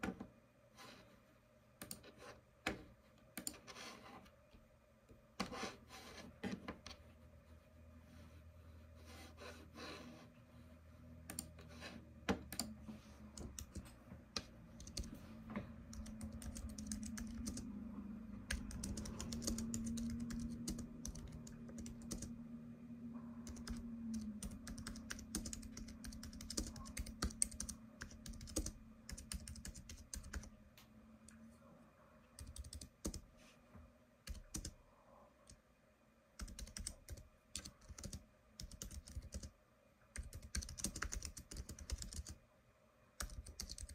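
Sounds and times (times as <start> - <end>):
low steady hum: 0.0 - 43.9
computer keyboard typing: 11.2 - 11.6, 12.4 - 12.8, 13.4 - 14.0, 14.8 - 15.2, 15.8 - 17.7, 18.4 - 22.4, 23.4 - 30.5, 32.4 - 33.2, 34.2 - 34.8, 36.4 - 39.5, 40.2 - 42.4, 43.2 - 43.9.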